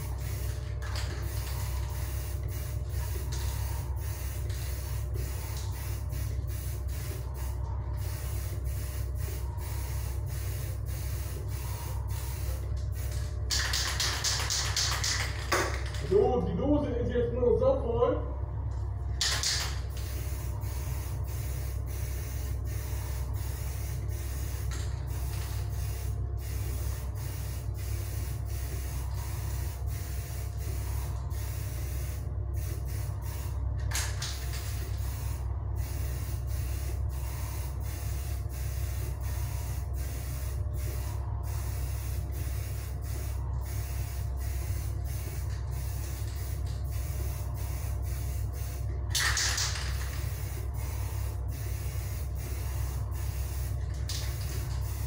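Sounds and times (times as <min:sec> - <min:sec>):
aerosol spray can hissing: 0:00.0 - 0:13.2, 0:19.9 - 0:33.6
steady low hum: 0:00.0 - 0:55.0.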